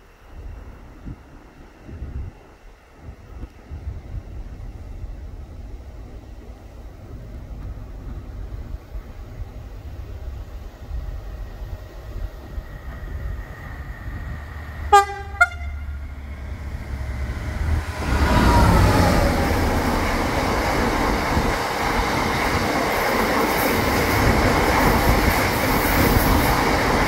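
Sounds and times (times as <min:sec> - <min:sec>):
locomotive engine passing: 0:05.2 - 0:27.0
locomotive horn toots: 0:14.9 - 0:16.1.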